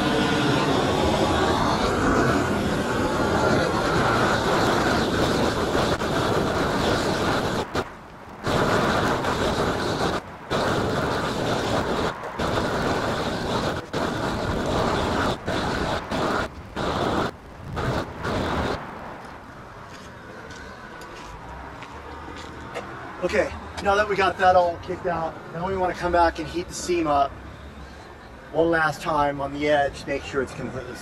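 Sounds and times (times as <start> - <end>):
roofing torch roaring: 0.0 - 22.3.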